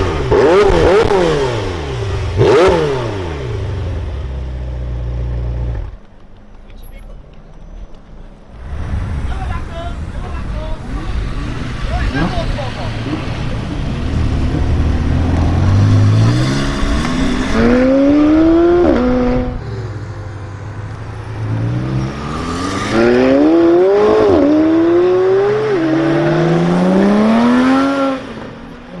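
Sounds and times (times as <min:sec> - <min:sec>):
car engine accelerating hard: 0:10.5 - 0:28.6.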